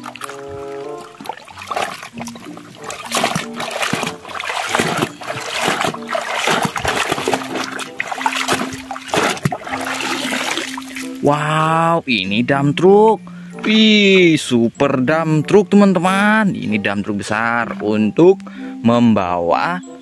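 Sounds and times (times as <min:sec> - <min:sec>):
water splashing in a basin: 0:00.0 - 0:11.4
water trickling: 0:00.0 - 0:14.9.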